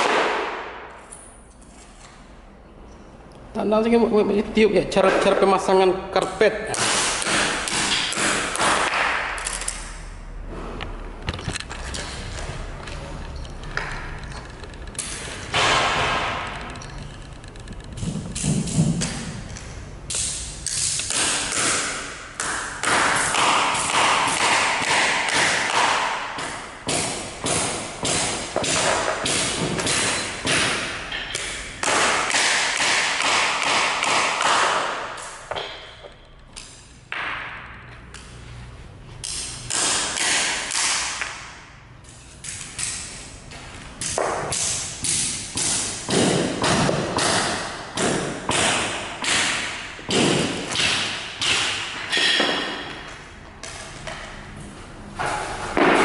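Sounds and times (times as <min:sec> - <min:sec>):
hammer blows nailing tack strip: 0:00.0 - 0:01.0, 0:06.7 - 0:09.9, 0:15.0 - 0:16.6, 0:20.1 - 0:35.8, 0:39.2 - 0:41.6, 0:44.0 - 0:53.8.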